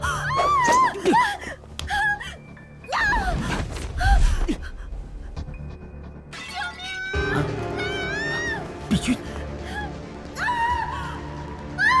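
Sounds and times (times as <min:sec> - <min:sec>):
woman crying out in distress: 0:00.0 - 0:03.3
tense background music: 0:00.0 - 0:12.0.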